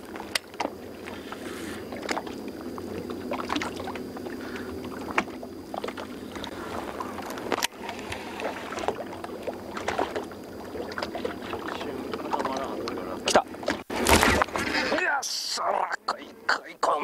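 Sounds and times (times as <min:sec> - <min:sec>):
waves lapping against boat hull: 0:00.0 - 0:15.8
low steady hum: 0:00.0 - 0:17.0.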